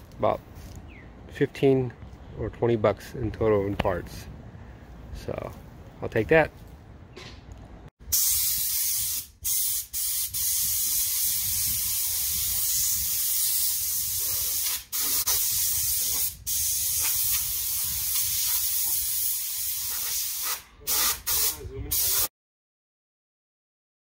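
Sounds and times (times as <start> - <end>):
compressed air hissing: 8.1 - 22.3.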